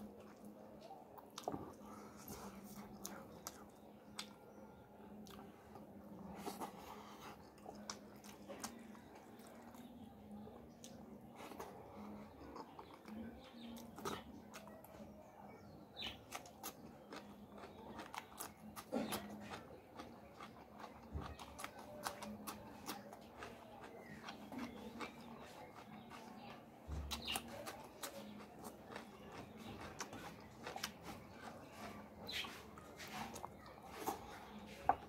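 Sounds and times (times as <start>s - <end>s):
person chewing: 0.0s - 15.0s, 16.1s - 35.0s
lip smacks and mouth clicks: 2.2s - 4.4s.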